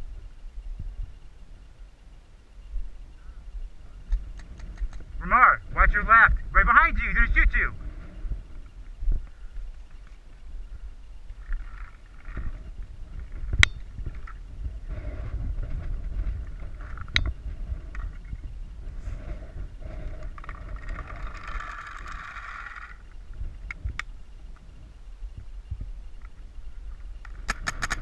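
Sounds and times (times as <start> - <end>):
wind rumble on camera: 0.0 - 28.0
paintball gun cracks: 27.3 - 28.0.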